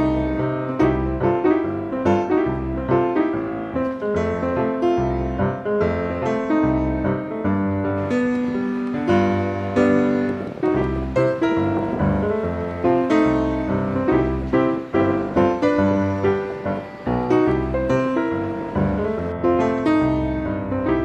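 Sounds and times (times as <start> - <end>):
piano-led music: 0.0 - 21.0
low bass note: 10.4 - 15.5.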